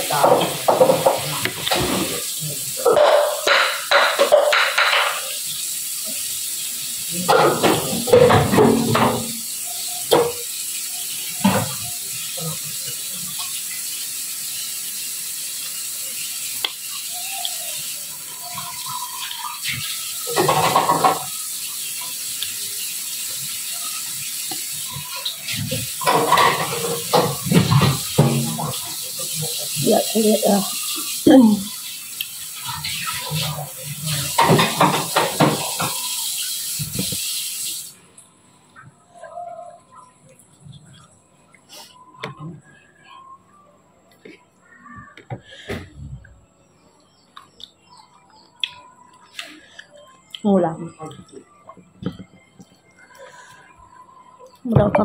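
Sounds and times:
steady hiss: 0:00.0 - 0:38.2
quiet eating noises: 0:00.0 - 0:55.0.

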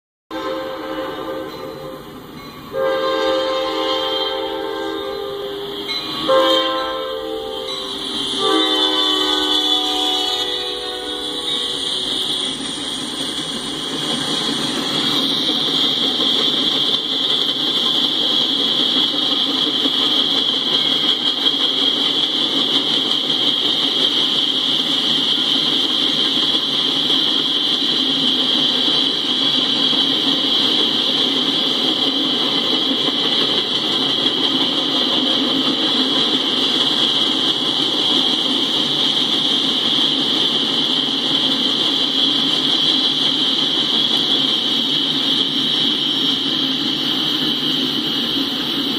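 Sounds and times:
freight train cars rolling: 0:00.3 - 0:48.9.

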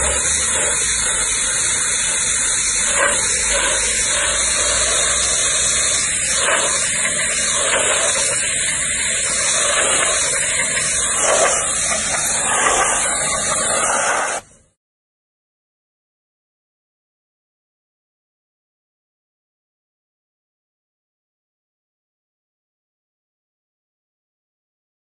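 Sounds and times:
pressure washer spraying water: 0:00.0 - 0:14.6.

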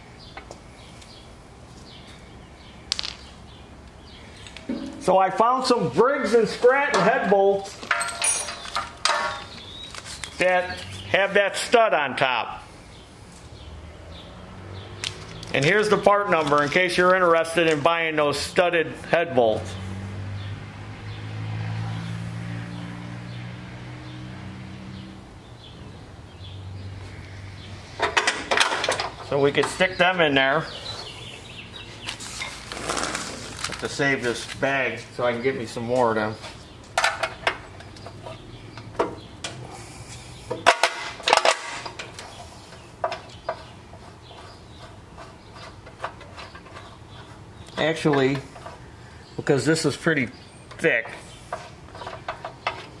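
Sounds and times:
steel nuts and washers clinking: 0:06.5 - 0:09.6, 0:28.0 - 0:30.2, 0:36.1 - 0:39.6, 0:40.5 - 0:44.0, 0:49.4 - 0:53.0.

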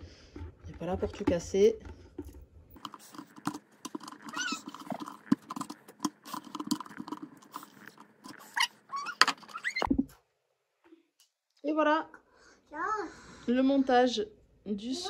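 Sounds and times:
plastic creaking and clicking: 0:00.3 - 0:10.0
short squeaks: 0:04.1 - 0:05.0, 0:08.3 - 0:09.9.

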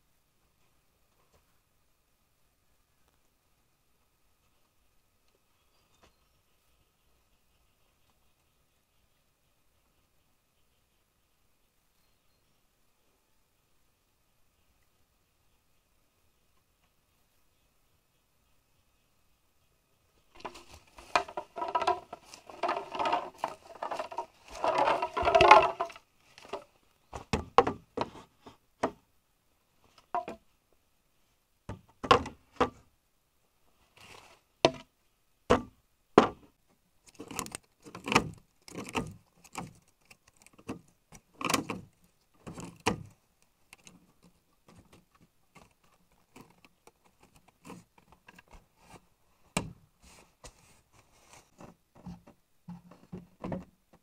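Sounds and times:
scraping and rattling of wood: 0:20.3 - 0:29.0, 0:37.1 - 0:49.0.

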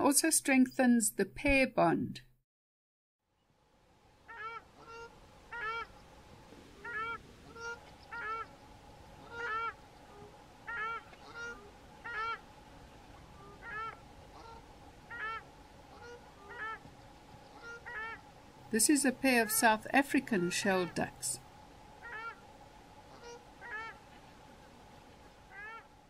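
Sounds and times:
softer duck calls: 0:04.3 - 0:05.9, 0:06.7 - 0:08.5, 0:09.2 - 0:12.4, 0:13.2 - 0:16.9, 0:17.5 - 0:18.2, 0:22.0 - 0:22.4, 0:23.1 - 0:24.0, 0:25.5 - 0:25.9
ducks honking: 0:04.3 - 0:06.0, 0:06.7 - 0:08.5, 0:09.2 - 0:12.5, 0:13.1 - 0:18.3, 0:22.0 - 0:22.4, 0:23.1 - 0:24.0, 0:25.5 - 0:25.9.

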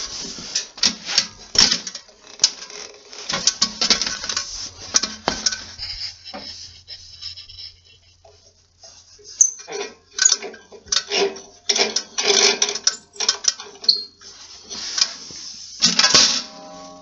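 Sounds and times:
small metal parts clicking: 0:09.4 - 0:14.1.

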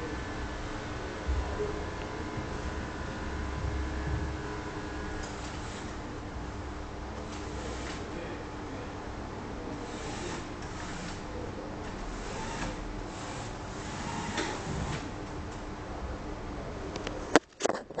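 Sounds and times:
robot motors whirring: 0:07.2 - 0:08.1, 0:09.8 - 0:11.2, 0:11.9 - 0:15.0.

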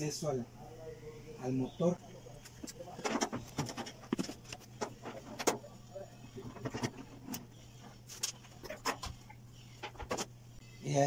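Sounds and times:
clicks and knocks of metal and plastic: 0:03.0 - 0:05.6.

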